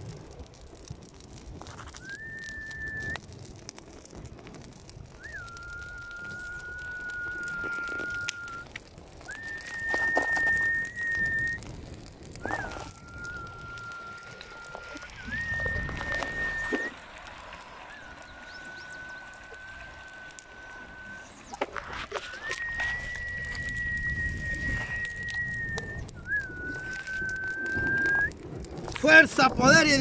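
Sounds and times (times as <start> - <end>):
person whistling long notes: 2.0 - 3.2, 5.2 - 11.6, 12.4 - 17.0, 17.8 - 28.4.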